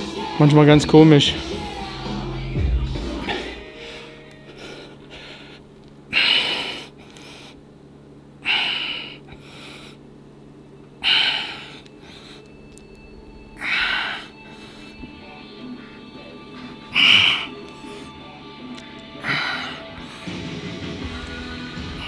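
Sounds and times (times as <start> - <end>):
quiet breaths in: 3.3 - 7.7, 8.4 - 10.1, 11.0 - 12.7, 13.6 - 18.4, 19.2 - 20.6.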